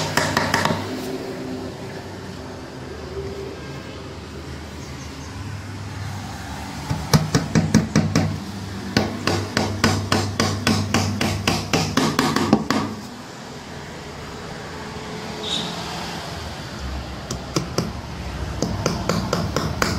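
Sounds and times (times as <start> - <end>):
hammer striking nails into wood: 0.0 - 0.9, 6.9 - 8.4, 9.0 - 13.0, 17.3 - 18.0, 18.6 - 19.9.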